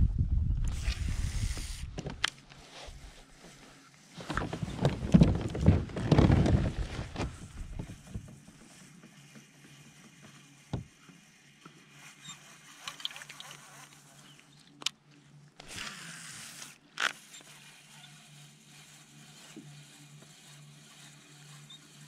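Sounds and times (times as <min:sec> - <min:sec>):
plastic kayak handling noise: 0:01.8 - 0:08.5.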